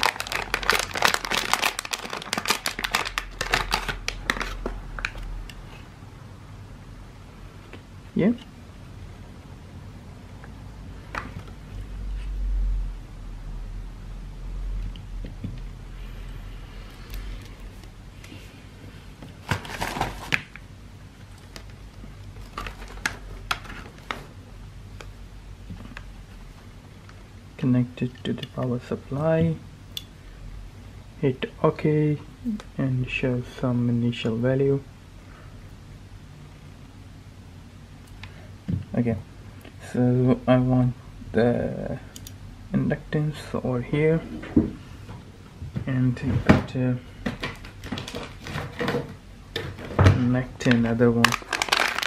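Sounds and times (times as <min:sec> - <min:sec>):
low steady hum: 0:00.0 - 0:52.0.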